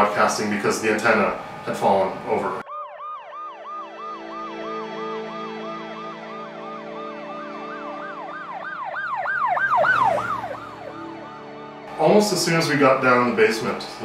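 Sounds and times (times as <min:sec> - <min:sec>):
siren yelping: 0:02.6 - 0:12.0
low steady drone: 0:09.9 - 0:14.0.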